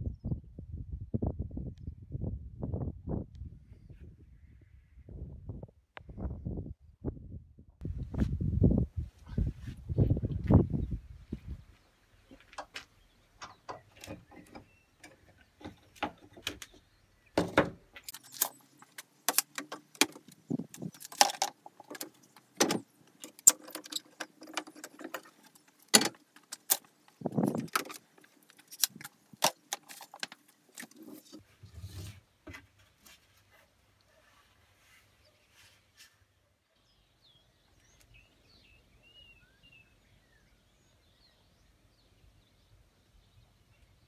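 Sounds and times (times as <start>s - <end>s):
metal clamps clicking and rattling: 17.5s - 31.0s.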